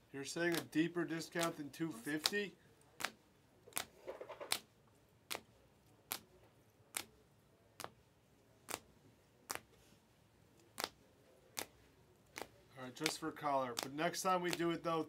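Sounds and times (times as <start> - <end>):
cards flipped with sharp clicks: 1.4 - 2.4, 3.0 - 4.7, 5.3 - 6.3, 8.6 - 8.9.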